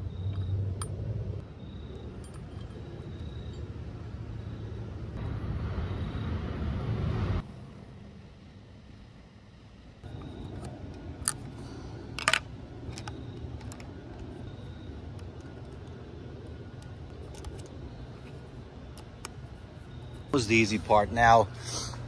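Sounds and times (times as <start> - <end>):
steady low rumble: 0.0 - 22.0
small metal parts clicking: 12.1 - 14.3.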